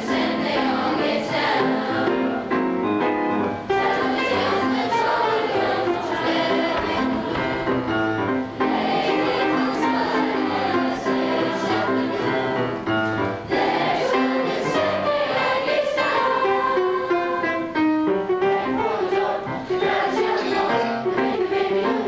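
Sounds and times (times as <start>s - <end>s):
choir singing: 0.0s - 2.6s, 3.6s - 22.0s
grand piano accompaniment: 0.0s - 22.0s.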